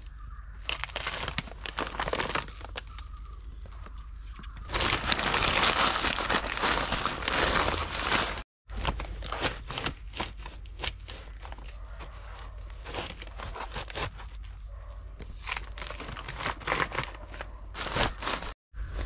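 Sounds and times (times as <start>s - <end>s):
knife sawing through fruit rind: 10.4s - 14.4s.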